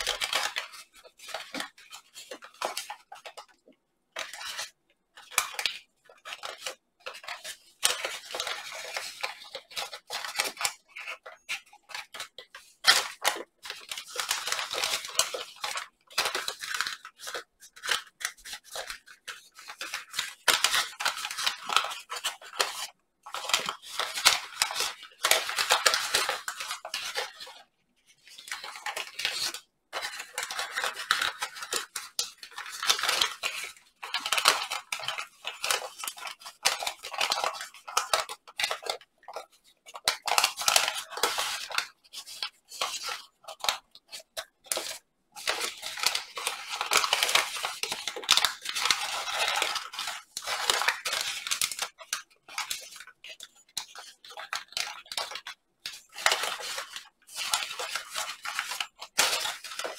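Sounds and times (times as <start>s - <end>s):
paper crinkling and rustling: 0.0s - 59.9s.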